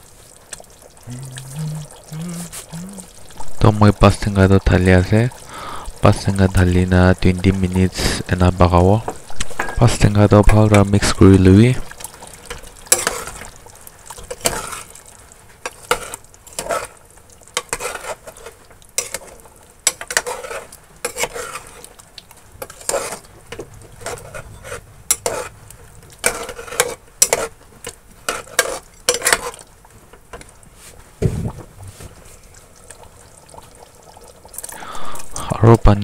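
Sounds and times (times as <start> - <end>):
spoon clinking and scraping pot: 12.9 - 13.3, 19.9 - 21.8, 24.0 - 25.5, 26.2 - 27.5, 28.3 - 29.6
metal spoon stirring thick curry: 12.9 - 13.4, 15.7 - 21.9, 22.6 - 23.2, 26.2 - 27.6, 28.2 - 29.6.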